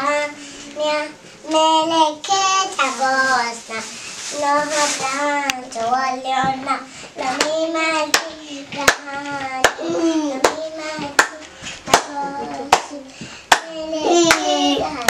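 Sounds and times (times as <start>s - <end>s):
girl singing: 0.0s - 15.0s
hand claps: 7.4s - 14.5s.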